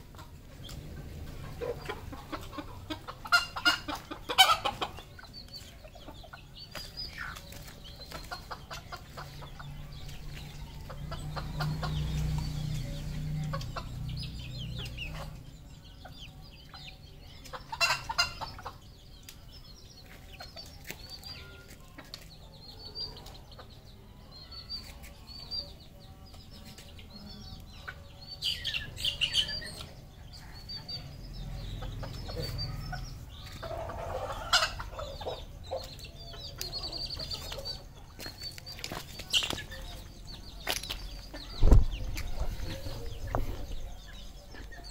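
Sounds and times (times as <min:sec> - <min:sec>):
junglefowl clucking and calling: 0:01.6 - 0:05.3, 0:17.5 - 0:18.8, 0:31.7 - 0:36.2.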